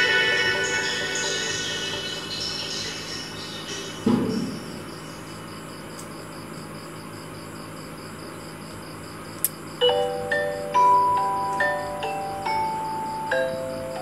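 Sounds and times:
glockenspiel-like mallet music: 9.8 - 14.0.

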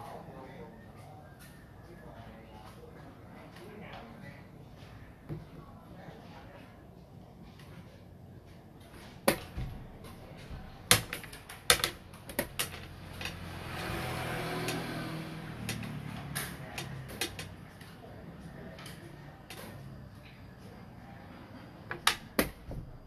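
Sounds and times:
game pieces clacking on wooden board: 10.9 - 13.5, 15.6 - 17.6, 21.9 - 22.6.

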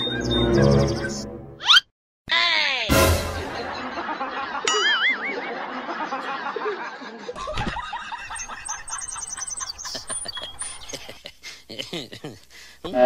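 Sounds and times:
person laughing: 3.4 - 13.0
high twittering: 8.1 - 11.1.

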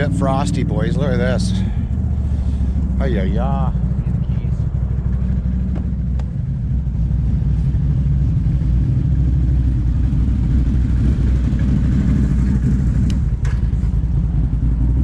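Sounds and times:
off-road vehicles idling: 0.0 - 15.0.

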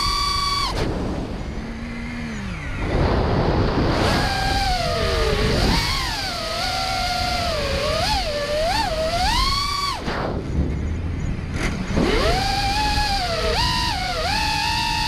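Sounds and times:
drone motors whining: 0.0 - 15.0
wind rushing over microphone: 0.0 - 15.0.

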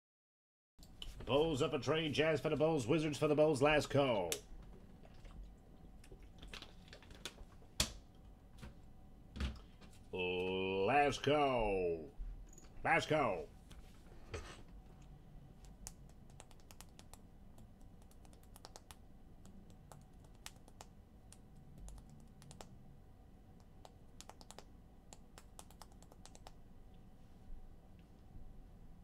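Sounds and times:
typing on keyboard: 15.6 - 22.7, 23.6 - 26.6.

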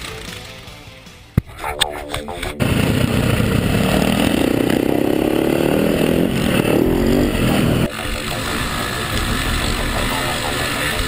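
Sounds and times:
dirt bike engine revving: 2.6 - 11.0.

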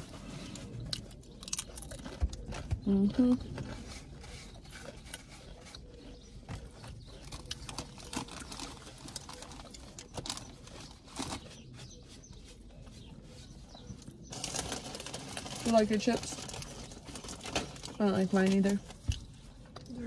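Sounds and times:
chewing sandwich: 0.0 - 15.6.

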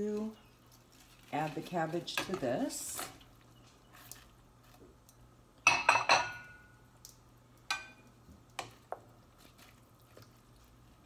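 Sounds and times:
ceramic dishes clinking: 5.7 - 6.6.

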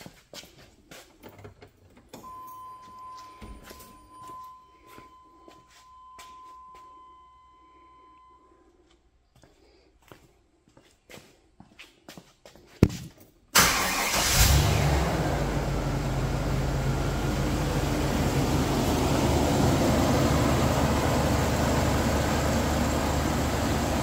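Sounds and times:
van engine starting and idling: 13.5 - 24.0.

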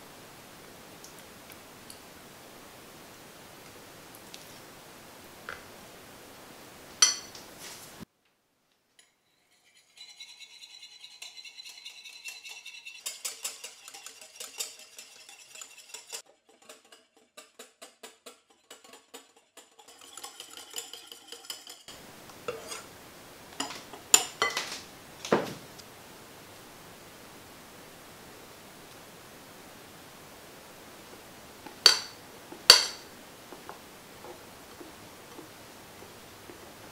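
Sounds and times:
utensil clinking on glass bowl: 7.0 - 7.4, 23.6 - 24.8, 31.8 - 33.0.

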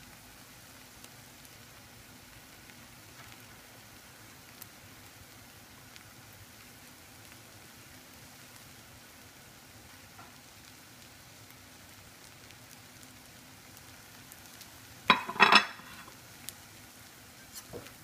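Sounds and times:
omelet sizzling in a pan: 0.0 - 18.0
metal spatula scraping a pan: 15.1 - 16.2.

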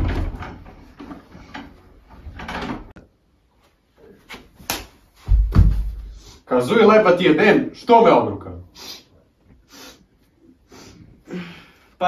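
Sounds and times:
heavy thump: 5.2 - 6.2
knocks: 5.3 - 6.1.

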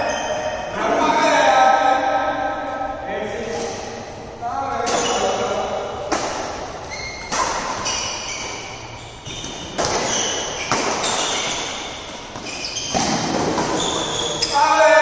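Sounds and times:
shoes squeaking on court: 0.0 - 0.6, 4.8 - 5.6, 6.2 - 14.7
rackets hitting shuttlecock: 4.8 - 14.6.

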